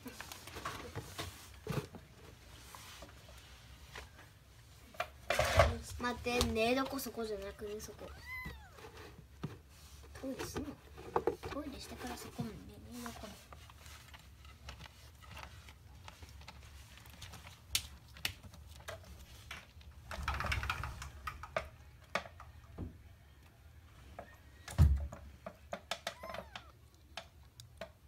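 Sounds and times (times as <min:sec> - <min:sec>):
paws scratching in cat litter: 0:05.7 - 0:20.1.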